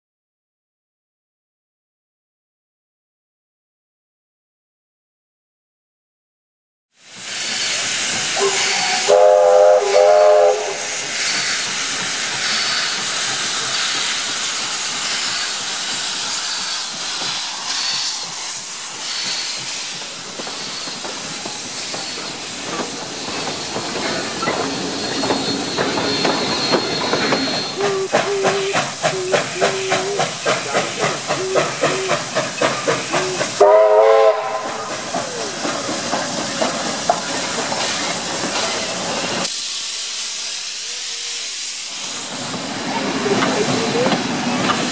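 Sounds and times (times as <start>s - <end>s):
steam hissing: 7.0s - 44.9s
steam whistle blast: 8.4s - 11.1s, 33.0s - 34.9s.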